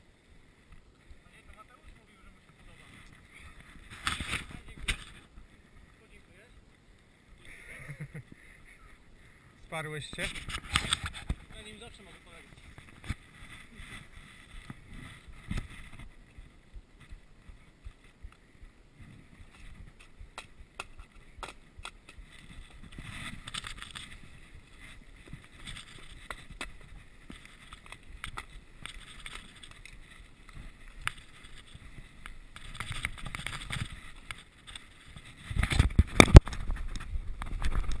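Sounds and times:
bike tyres rolling over snow: 0.0s - 9.4s, 10.0s - 38.0s
bike clicks and rattles: 10.2s - 11.8s, 19.1s - 38.0s.

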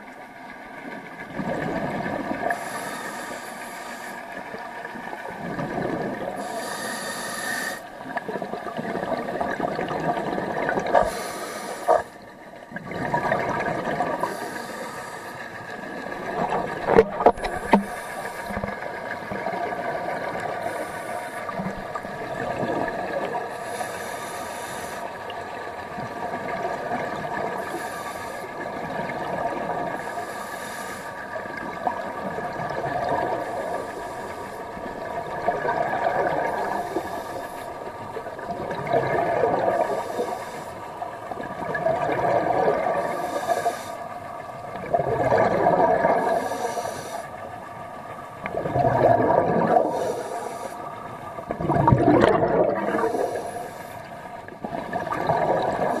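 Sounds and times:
exhaled bubbles gushing: 1.2s - 2.6s, 4.5s - 6.5s, 7.9s - 11.2s, 11.9s - 14.5s, 15.8s - 20.8s, 21.5s - 23.5s, 28.6s - 30.1s, 31.5s - 40.1s, 41.2s - 43.4s, 44.5s - 46.6s, 48.4s - 50.4s, 51.4s - 53.8s, 54.4s - 56.0s
regulator inhale hiss: 2.4s - 4.5s, 6.3s - 8.0s, 10.8s - 12.2s, 14.2s - 16.1s, 17.3s - 18.8s, 20.4s - 21.8s, 23.4s - 25.3s, 27.5s - 28.6s, 29.9s - 31.4s, 33.4s - 34.8s, 36.4s - 37.9s, 39.7s - 41.0s, 42.9s - 44.2s, 46.2s - 47.5s, 49.8s - 51.1s, 52.9s - 54.3s.

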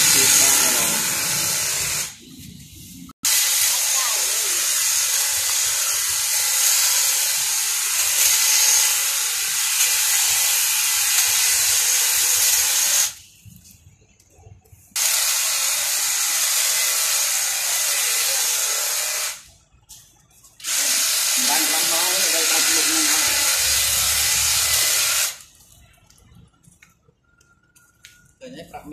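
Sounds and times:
hedge trimmer whirring: 0.0s - 2.2s, 3.3s - 13.1s, 20.6s - 25.4s.

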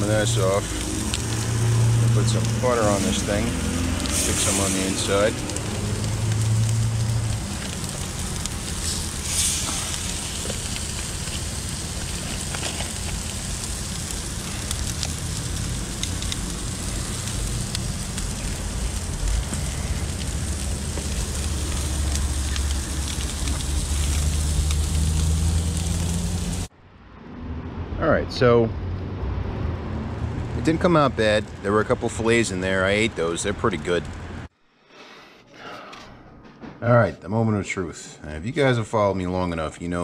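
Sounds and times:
crackling pops: 0.0s - 26.7s
fish sizzling on a grill: 0.0s - 26.7s, 30.6s - 34.3s
gas burners rushing: 0.0s - 26.7s, 29.9s - 34.5s.

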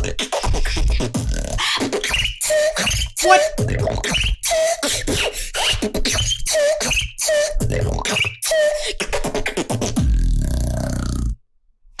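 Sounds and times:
boy beatboxing: 3.2s - 3.5s.

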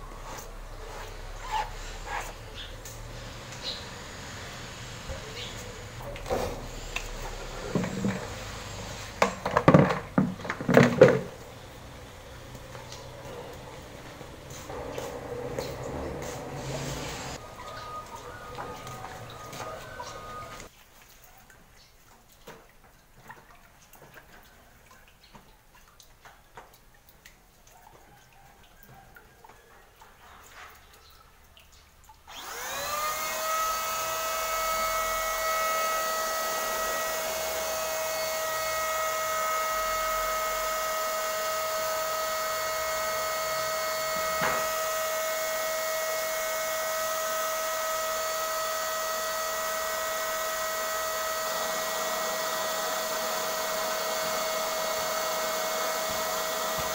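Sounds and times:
paint spray gun motor hum: 0.0s - 20.7s, 32.3s - 56.9s.

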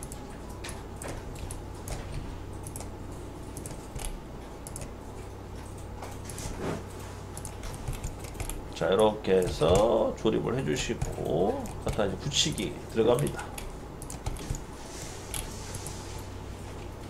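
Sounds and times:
computer mouse clicks: 0.0s - 5.0s, 7.4s - 9.9s, 10.9s - 14.6s
low electrical hum: 0.0s - 17.0s.

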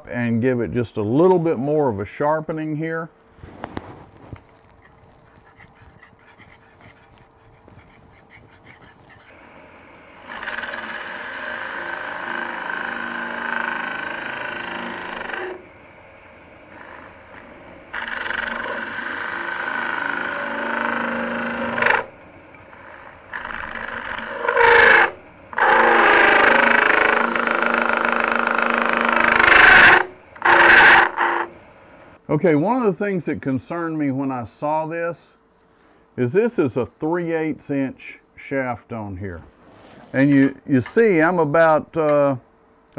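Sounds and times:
lathe running quietly: 3.6s - 32.2s
tool cutting spinning wood: 4.8s - 31.6s.

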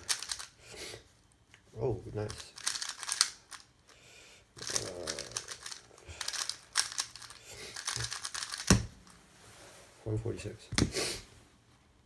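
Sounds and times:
speed cube plastic clicks: 0.0s - 0.6s, 2.2s - 3.7s, 4.6s - 8.8s.

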